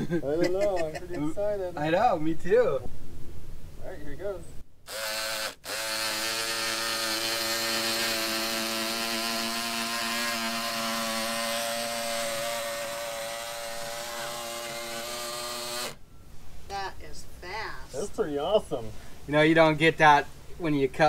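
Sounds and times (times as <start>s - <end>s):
electric rotary cutter running: 4.9s - 16.0s.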